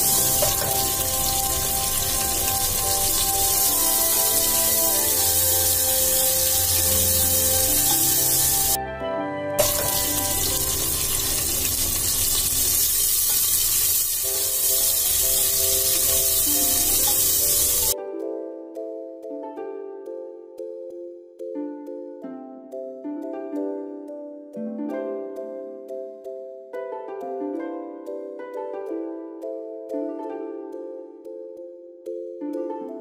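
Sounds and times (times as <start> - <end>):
meat sizzling in oil: 0.0 - 8.8, 9.6 - 18.0
soft background music: 0.0 - 33.0.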